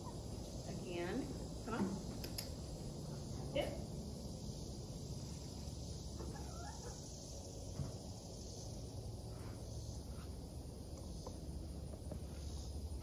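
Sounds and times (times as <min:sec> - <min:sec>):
insect chirring: 0:00.0 - 0:13.0.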